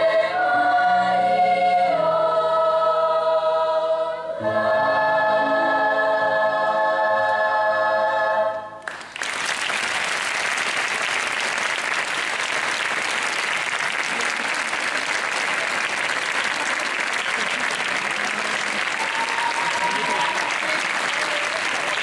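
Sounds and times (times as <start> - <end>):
youth choir singing a chord: 0.0 - 8.8
audience applause: 8.8 - 22.0.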